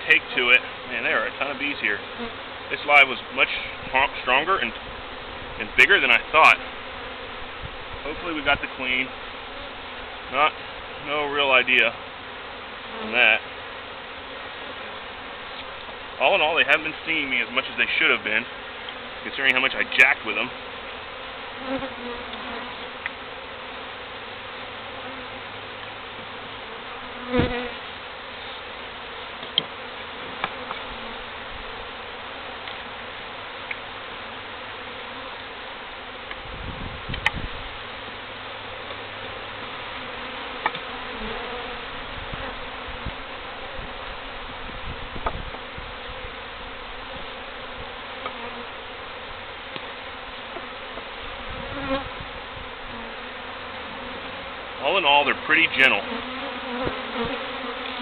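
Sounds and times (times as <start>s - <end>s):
bees buzzing: 0.0s - 58.0s
thump: 56.8s - 57.4s.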